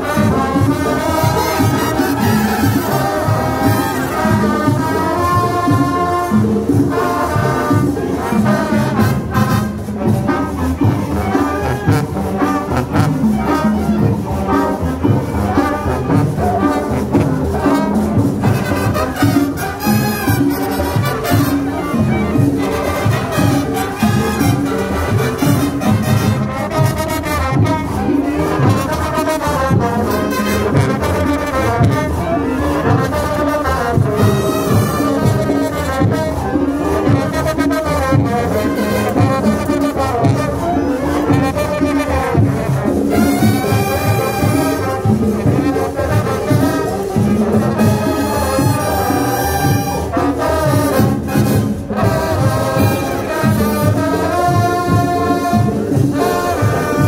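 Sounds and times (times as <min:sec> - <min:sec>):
brass instruments playing melody: 0:00.0 - 0:57.0
steady drum beat: 0:00.0 - 0:57.0.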